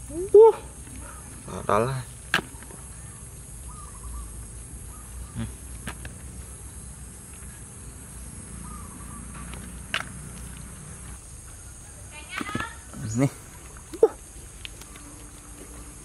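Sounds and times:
high insect drone: 0.0 - 16.0
hands scraping rotten wood and soil: 8.6 - 11.2.

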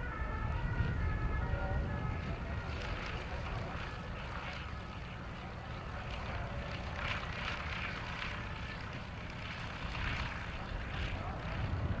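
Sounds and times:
light aircraft engine droning: 0.0 - 12.0
wind rumbling on microphone: 0.0 - 12.0.

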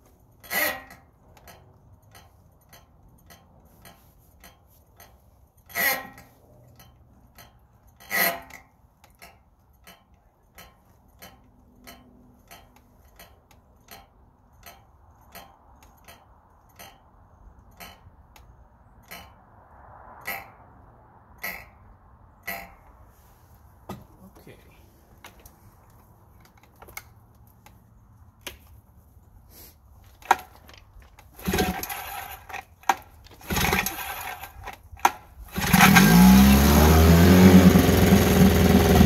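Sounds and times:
outboard starter rope rasp: 0.0 - 16.2, 31.2 - 39.0
motor cranking: 30.2 - 39.0.

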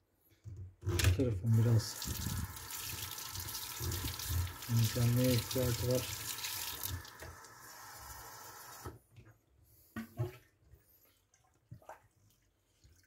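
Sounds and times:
tap water running: 1.1 - 9.0.

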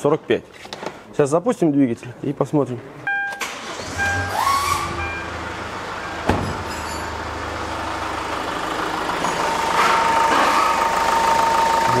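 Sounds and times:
engine starting: 3.4 - 5.0
diesel engine idling: 3.5 - 12.0.

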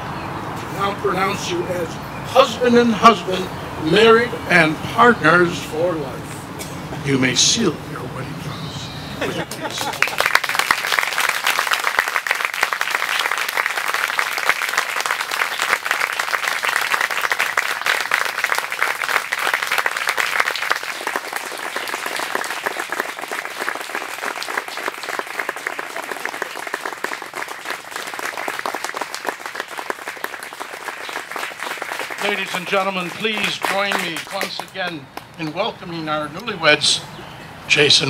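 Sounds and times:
guests applauding: 9.3 - 35.6.

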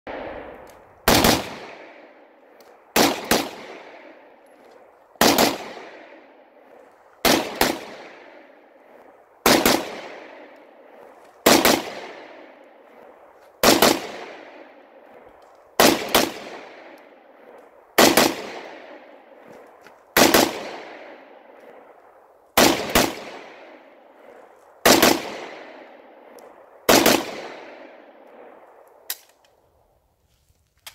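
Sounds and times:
gunfire echo: 0.1 - 29.1
rifle firing bursts: 1.0 - 2.1, 2.9 - 4.2, 5.2 - 6.2, 7.2 - 8.5, 9.4 - 10.6, 11.4 - 13.0, 13.6 - 14.7, 15.8 - 17.0, 18.0 - 19.2, 20.2 - 21.2, 22.6 - 23.8, 24.8 - 25.9, 26.9 - 27.9.

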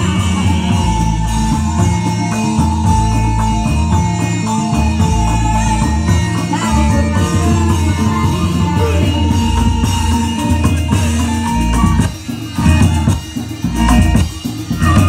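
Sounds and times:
loud band music over loudspeakers: 0.0 - 15.0.

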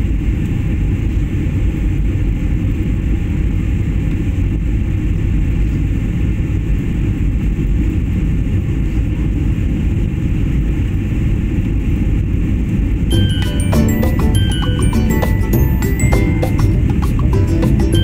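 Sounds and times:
airliner cabin engine rumble: 0.0 - 13.0.

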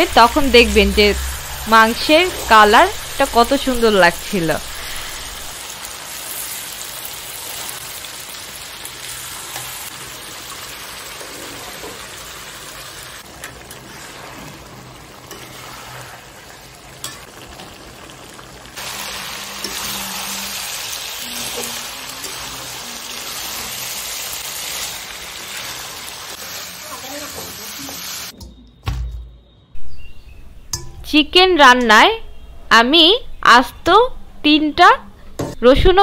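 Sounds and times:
chicken sizzling in oil: 0.2 - 28.3
metal spatula stirring: 13.2 - 17.8, 19.5 - 25.0.

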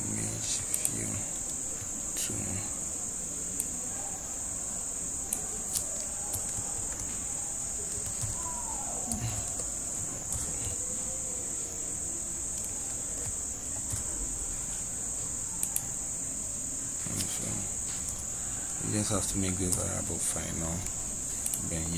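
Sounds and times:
high-pitched whine: 0.0 - 21.9
computer keyboard typing: 5.2 - 10.8, 12.4 - 14.2, 15.3 - 16.0, 17.1 - 21.9.

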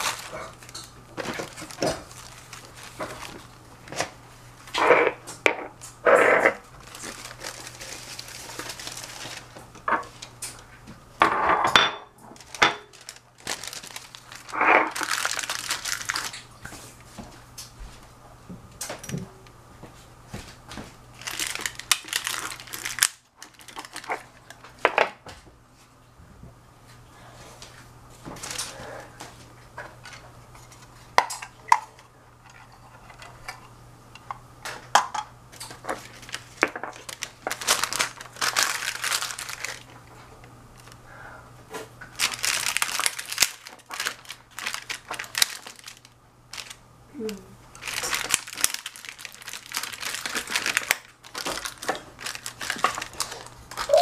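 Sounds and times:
plastic bags crinkling: 0.0 - 5.3, 6.0 - 10.7, 11.7 - 17.1, 21.1 - 24.9, 28.2 - 29.0, 35.5 - 41.0, 42.0 - 54.0
faint steady hum: 0.0 - 54.0.

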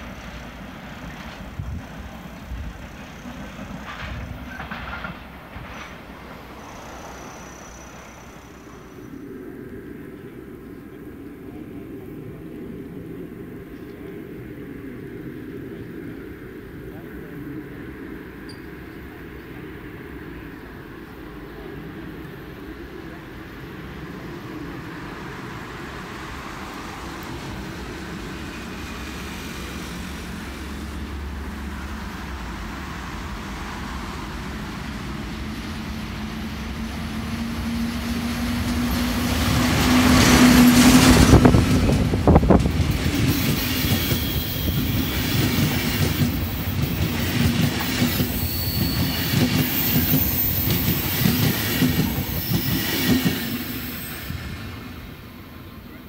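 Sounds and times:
train wheels clattering: 0.0 - 8.2, 34.5 - 54.2
electric train passing: 0.0 - 56.0
high wheel squeal: 5.7 - 9.2, 43.2 - 55.4.

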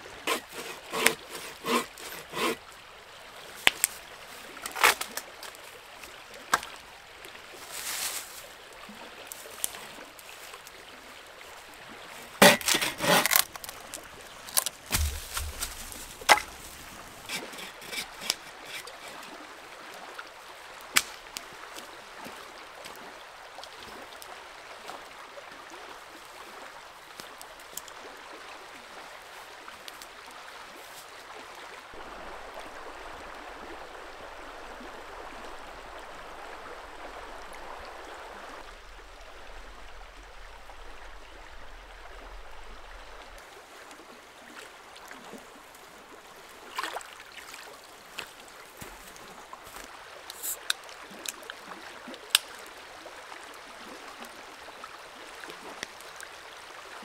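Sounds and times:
river water rushing: 0.0 - 7.8, 8.4 - 22.8, 31.8 - 52.1.

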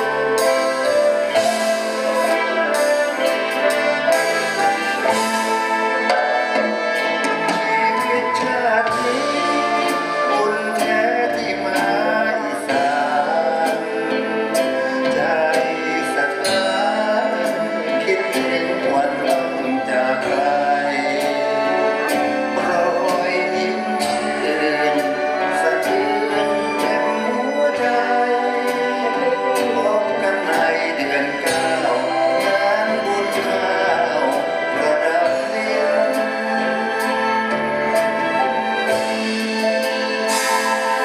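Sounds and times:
person singing: 0.0 - 39.4
live band with brass: 0.0 - 41.0.

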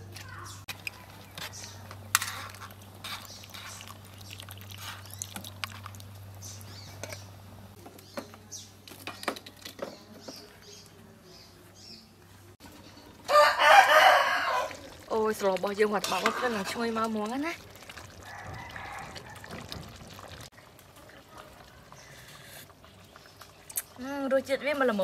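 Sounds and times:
small birds chirping: 0.2 - 2.1, 2.8 - 13.2, 21.1 - 25.0.

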